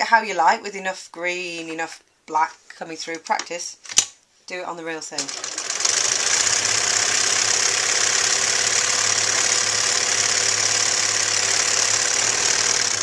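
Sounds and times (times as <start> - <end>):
sewing machine running: 5.2 - 13.0.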